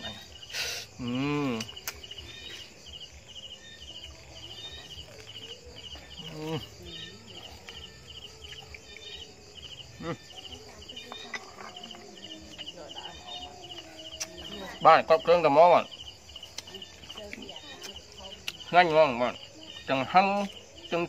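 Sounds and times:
cricket chirping: 0:00.0 - 0:21.0.

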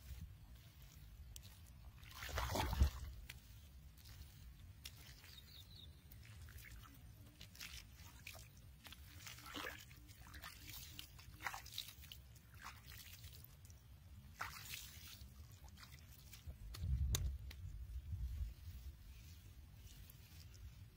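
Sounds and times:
crunching of damp soil: 0:00.0 - 0:20.9.

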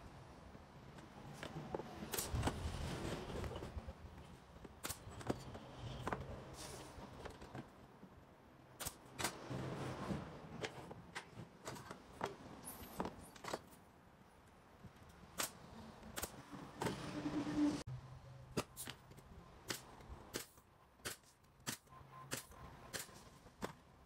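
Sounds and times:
brad nailer shots: 0:08.8 - 0:09.6, 0:19.7 - 0:23.2.

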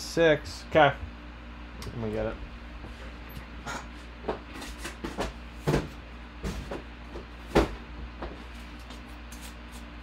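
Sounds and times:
steady low hum: 0:00.0 - 0:10.0
knocks and thumps of handling: 0:04.2 - 0:08.5.

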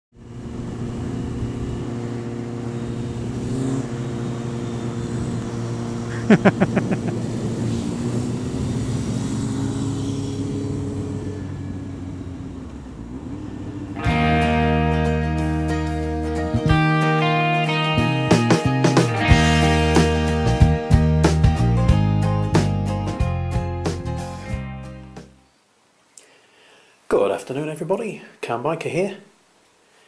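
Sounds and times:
motorcycle engine cruising: 0:00.2 - 0:20.8
guitar music: 0:14.0 - 0:25.4.

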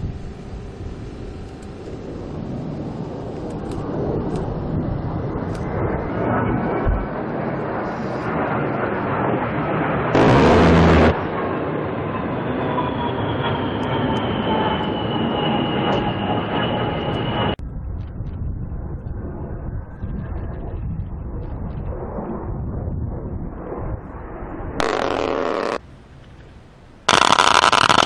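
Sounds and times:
jet engine whine: 0:00.0 - 0:28.0
rotary cannon burst: 0:10.1 - 0:11.4, 0:24.8 - 0:25.8, 0:27.1 - 0:28.0.

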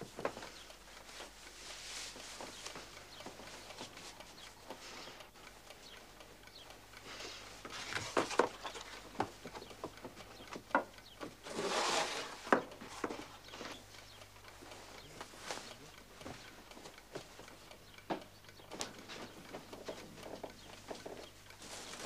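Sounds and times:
cloth rustling: 0:01.0 - 0:04.3, 0:21.6 - 0:22.0.

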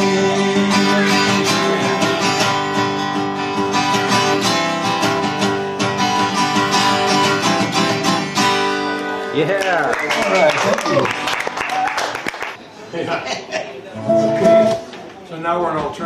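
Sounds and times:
acoustic guitar strumming: 0:00.0 - 0:09.5, 0:14.0 - 0:14.9.

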